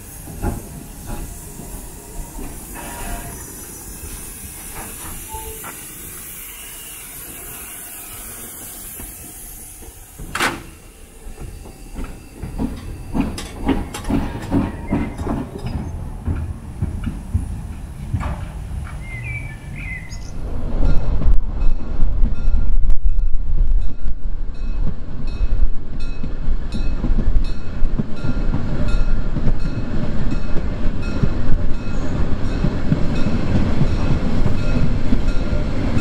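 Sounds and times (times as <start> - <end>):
loud steam release: 0.0 - 12.0
steam hissing: 0.0 - 15.8.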